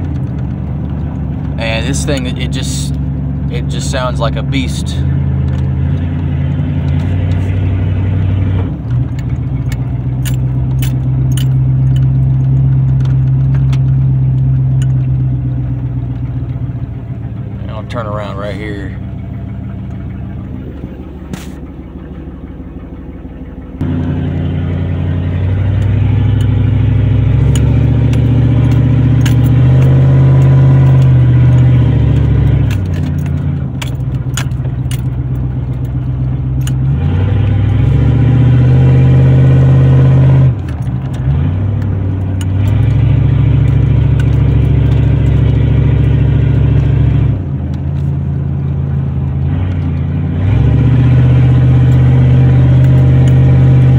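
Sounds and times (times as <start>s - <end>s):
light rattles and clicks: 0.0s - 3.1s, 8.8s - 16.7s, 27.5s - 36.8s, 40.6s - 47.0s
pickup truck engine revving: 0.0s - 53.9s.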